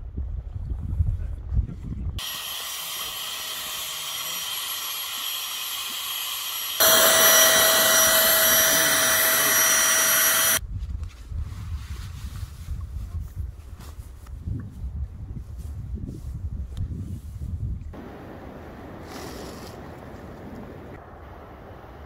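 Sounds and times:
air pump whining: 0:02.2 - 0:10.6.

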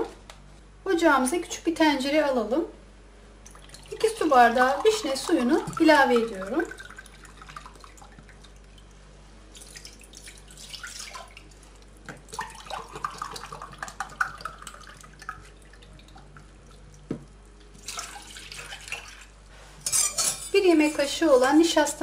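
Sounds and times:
juice splashing into saucepan: 0:03.4 - 0:17.1, 0:17.7 - 0:19.4
juice pouring into glass: 0:03.5 - 0:08.8, 0:12.4 - 0:16.9, 0:17.7 - 0:19.3.

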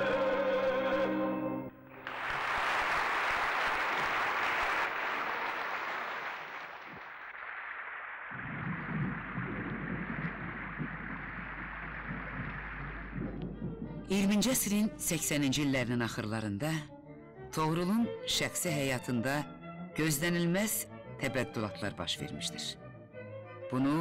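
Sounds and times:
audience applauding: 0:01.9 - 0:13.6
irregular rushing sound: 0:07.0 - 0:14.0
steady low hum: 0:08.4 - 0:14.1.

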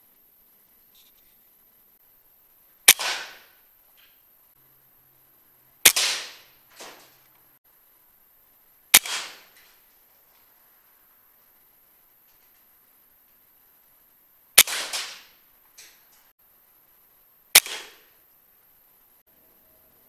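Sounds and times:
air rifle shots cracking: 0:02.9 - 0:03.6, 0:05.8 - 0:07.0, 0:08.9 - 0:09.6, 0:14.6 - 0:15.4, 0:17.6 - 0:18.1.

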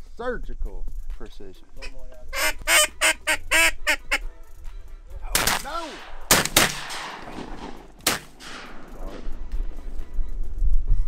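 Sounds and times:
duck call short notes: 0:01.8 - 0:04.3
shotgun shots: 0:05.3 - 0:09.3.

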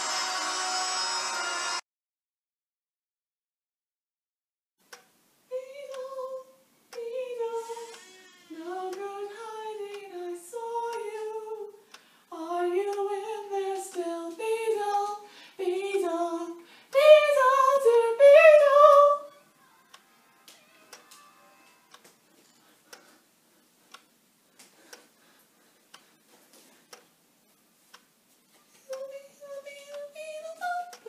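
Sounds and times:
woman singing unaccompanied: 0:05.5 - 0:19.4, 0:28.8 - 0:31.0.

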